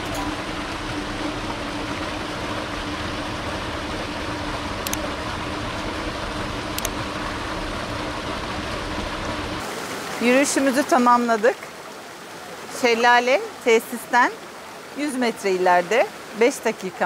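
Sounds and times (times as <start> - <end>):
waterfall splashing into pool: 0.0 - 17.0.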